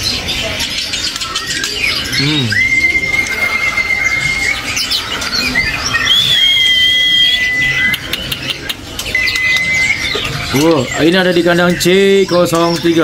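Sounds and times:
songbirds chirping: 0:00.0 - 0:13.0
long whistled notes: 0:05.8 - 0:08.0.

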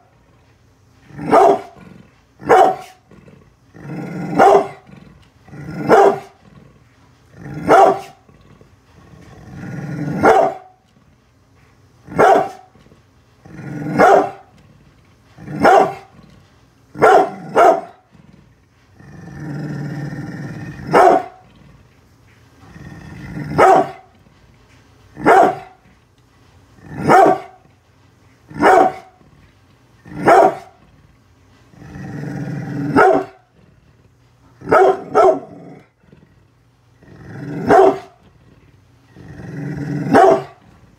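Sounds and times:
dog growling: 0:00.0 - 0:40.9
dog barking: 0:01.2 - 0:01.8, 0:02.4 - 0:03.0, 0:04.3 - 0:04.8, 0:05.8 - 0:06.4, 0:07.6 - 0:08.2, 0:10.2 - 0:10.8, 0:12.1 - 0:12.7, 0:13.9 - 0:14.5, 0:15.5 - 0:16.1, 0:17.0 - 0:18.0, 0:20.9 - 0:21.4, 0:23.5 - 0:24.1, 0:25.2 - 0:25.8, 0:27.0 - 0:27.6, 0:28.5 - 0:29.1, 0:30.1 - 0:30.8, 0:32.9 - 0:33.4, 0:34.6 - 0:35.5, 0:37.6 - 0:38.2, 0:40.1 - 0:40.6.

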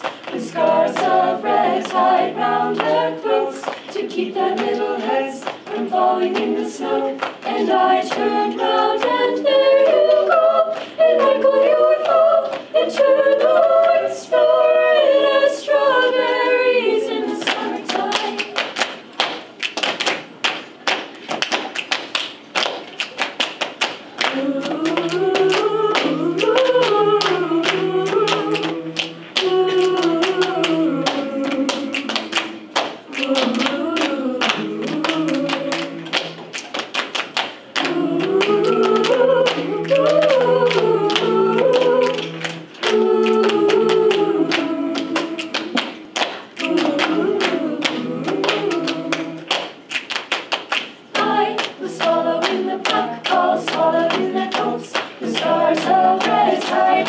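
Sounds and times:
choir singing sustained chords: 0:00.3 - 0:18.6, 0:24.3 - 0:36.4, 0:37.8 - 0:45.8, 0:46.6 - 0:49.5, 0:51.2 - 0:57.0
hand claps and body slaps: 0:17.5 - 0:57.0.

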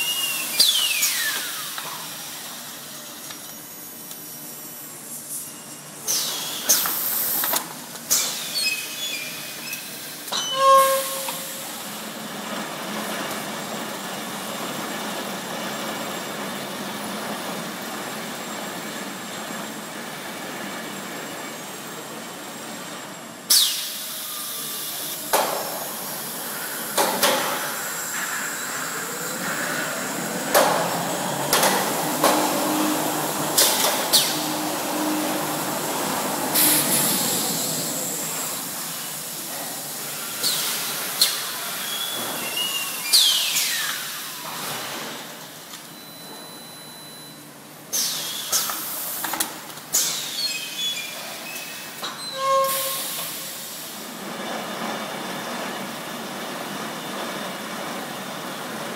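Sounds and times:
machine motors humming: 0:11.4 - 0:44.7
short beep: 0:45.9 - 0:47.4.

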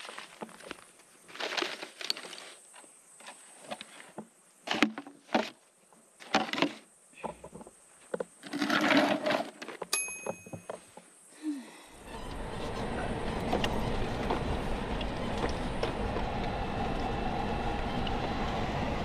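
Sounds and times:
footsteps crunching on gravel: 0:00.0 - 0:04.0, 0:12.4 - 0:16.5.

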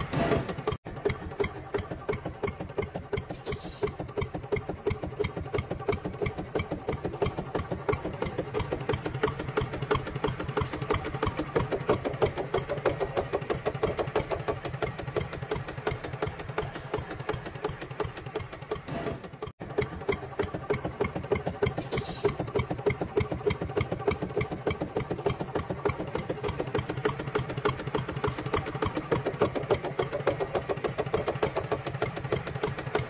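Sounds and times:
small engine idling: 0:00.0 - 0:33.0.

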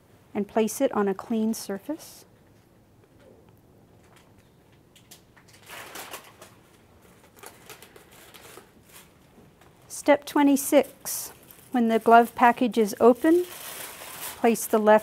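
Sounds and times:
paper packaging crinkling: 0:05.0 - 0:09.9, 0:11.3 - 0:15.0.

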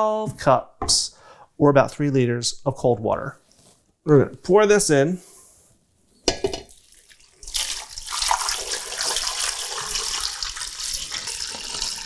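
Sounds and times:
water pouring into a pot: 0:06.7 - 0:12.0.

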